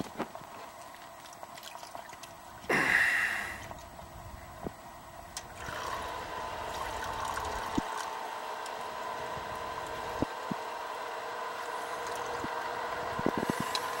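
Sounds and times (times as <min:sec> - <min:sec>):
liquid splashing pour: 0:00.8 - 0:02.4, 0:05.5 - 0:08.1
liquid gurgling from a jug: 0:05.5 - 0:08.1.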